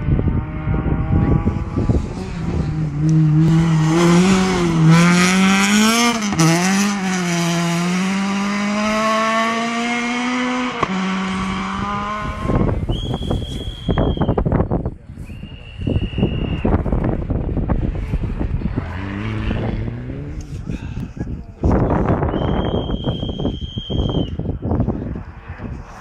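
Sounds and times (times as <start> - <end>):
rally car engine revving: 0.0 - 13.3, 17.0 - 20.7.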